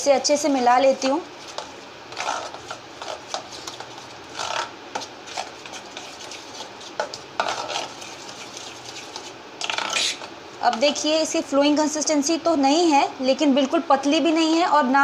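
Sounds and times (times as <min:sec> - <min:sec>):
spoon beating thick batter: 0:01.4 - 0:09.4.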